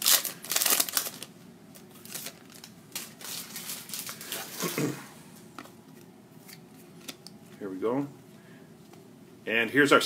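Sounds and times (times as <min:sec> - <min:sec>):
wrapper and cards rustling: 0:00.0 - 0:05.0.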